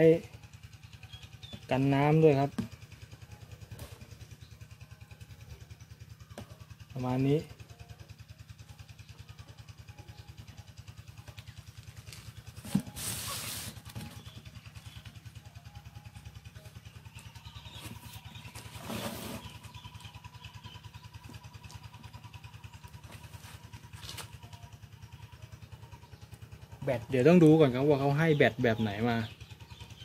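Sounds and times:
low pulsing hum: 0.0 - 30.0
cardboard scraping on wood: 12.6 - 14.2, 18.5 - 19.7.

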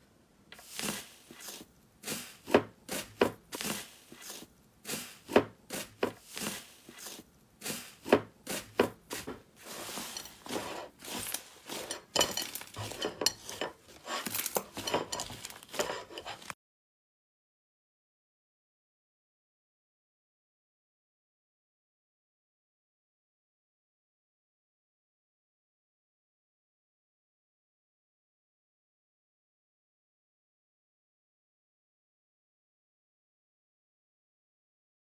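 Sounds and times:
foil crinkling: 5.8 - 16.6.

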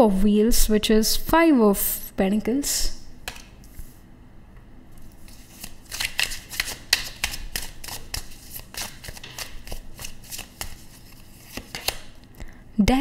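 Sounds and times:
cards being shuffled: 5.0 - 12.2.

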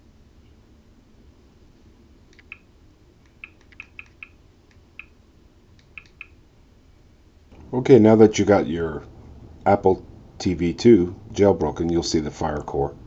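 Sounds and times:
faint steady hum: 0.0 - 13.0
soft menu clicks: 5.8 - 6.4.

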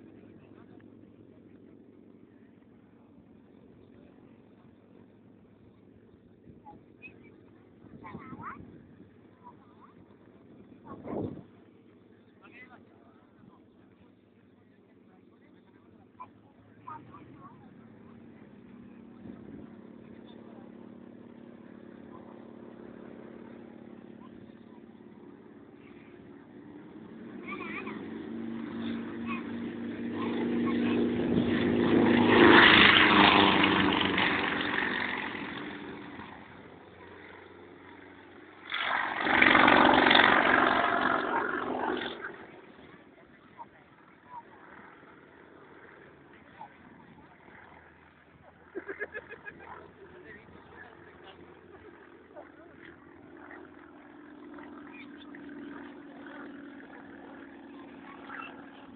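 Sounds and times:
propeller plane engine: 0.0 - 58.9
faint chirps: 6.7 - 7.5.

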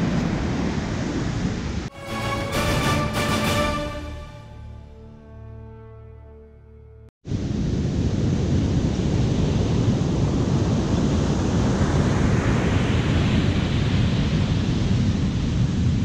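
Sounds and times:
wind buffeting the microphone: 0.0 - 1.9, 7.3 - 16.0.

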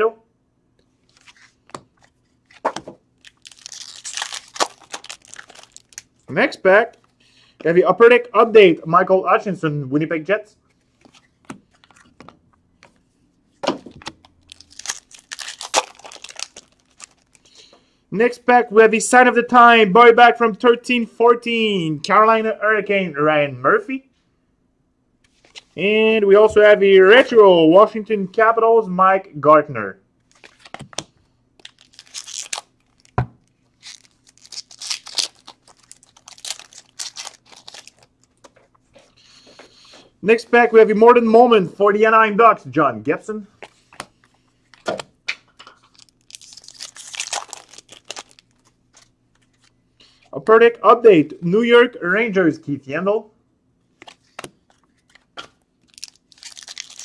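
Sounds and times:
wrapper tearing and crinkling: 3.2 - 6.3, 13.9 - 17.5, 30.3 - 30.9, 31.6 - 38.5, 45.8 - 49.7, 54.1 - 57.0.

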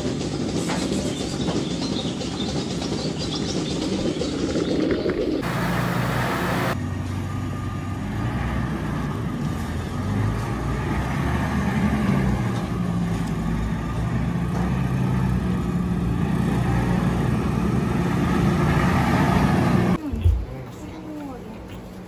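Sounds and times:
tractor diesel engine running: 5.4 - 8.1.

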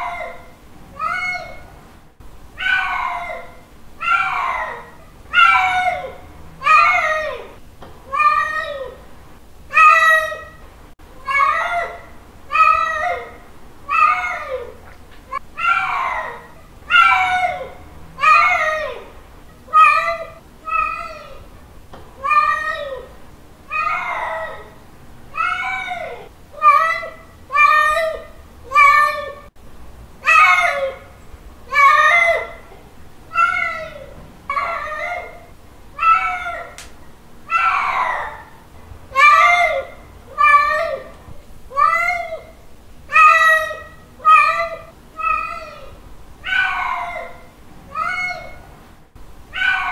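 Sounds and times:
cat meowing loudly: 2.6 - 7.5, 36.0 - 36.8, 37.5 - 38.5, 43.1 - 48.6, 49.5 - 49.9
cat meowing: 43.1 - 48.6, 49.5 - 49.9.

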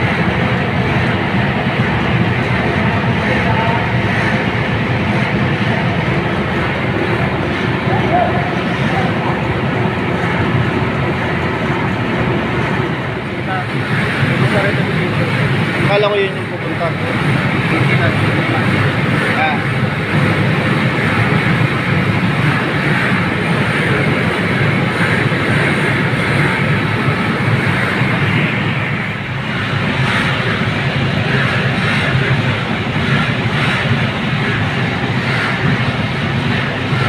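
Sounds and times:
ventilation blower rushing air: 0.0 - 37.0.

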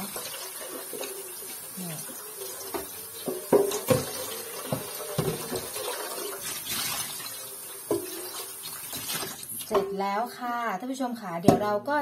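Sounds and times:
tap water splashing into sink: 0.0 - 9.9
pot knocking: 2.7 - 5.9.

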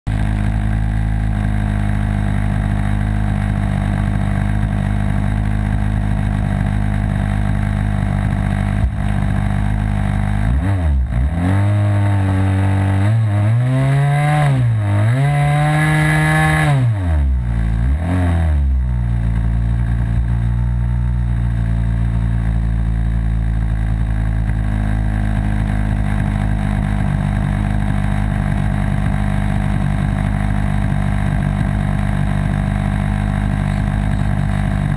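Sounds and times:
model aircraft engine idling: 0.1 - 10.4, 19.3 - 34.9.

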